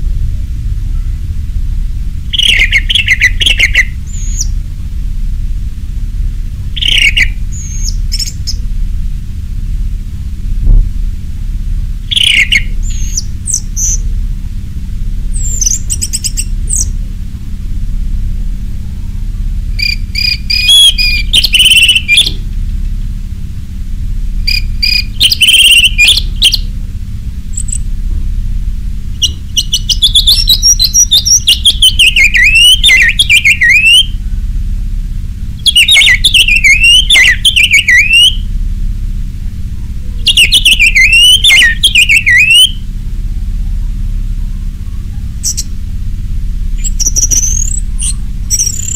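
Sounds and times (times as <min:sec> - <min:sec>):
steady low hum: 0:00.0 - 0:48.9
thrush singing: 0:35.6 - 0:38.4, 0:40.2 - 0:42.8.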